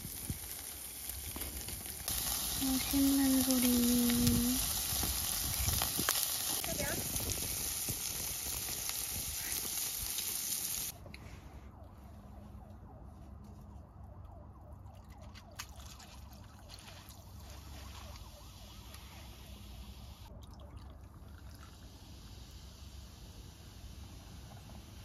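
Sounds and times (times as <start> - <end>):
faint fizzing crackle: 0.0 - 10.9, 15.0 - 19.7.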